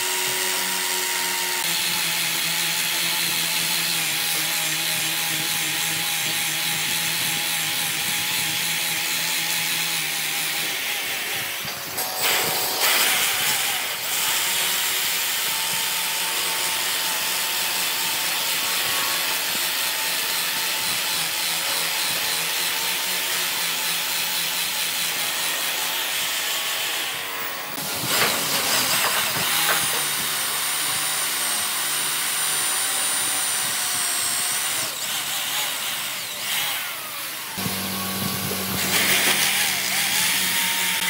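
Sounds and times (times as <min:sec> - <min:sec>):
power tool motor: 0:00.0 - 0:41.0
wood being cut: 0:00.0 - 0:41.0.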